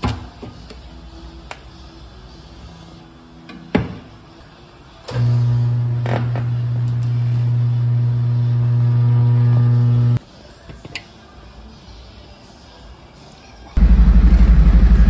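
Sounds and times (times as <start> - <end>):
motor humming: 5.1 - 10.2, 13.8 - 15.0.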